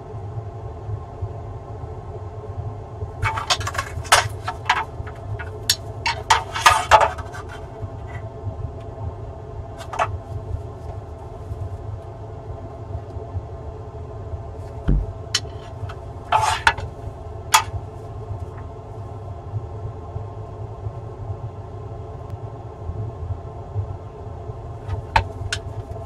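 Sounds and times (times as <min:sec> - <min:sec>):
steady low hum: 0:00.0 - 0:26.0
tools clicking and scraping: 0:03.2 - 0:08.2, 0:09.8 - 0:10.1, 0:15.4 - 0:16.9, 0:17.5 - 0:17.7
dull thump: 0:14.8 - 0:15.7.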